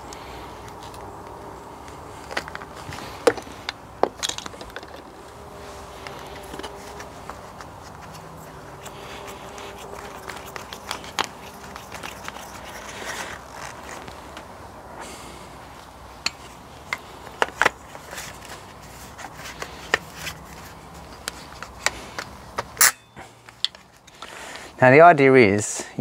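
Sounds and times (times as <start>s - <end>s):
plastic clicks and scrapes: 6.0s - 14.5s, 16.3s - 22.8s.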